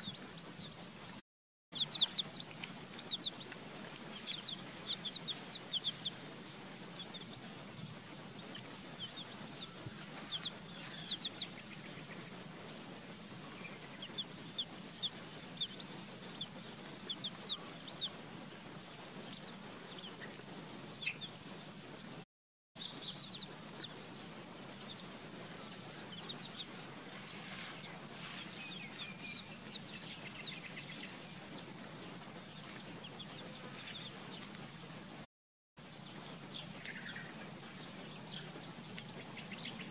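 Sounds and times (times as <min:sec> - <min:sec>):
chicks peeping: 0:00.0 - 0:01.2, 0:01.8 - 0:22.2, 0:22.8 - 0:35.2, 0:35.9 - 0:39.9
low background hum: 0:01.8 - 0:22.2, 0:22.8 - 0:35.2.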